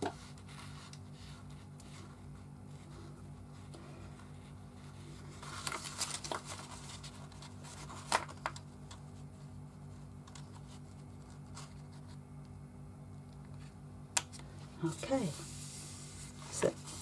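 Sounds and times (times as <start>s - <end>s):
paper rustling and crinkling: 0.0s - 12.2s.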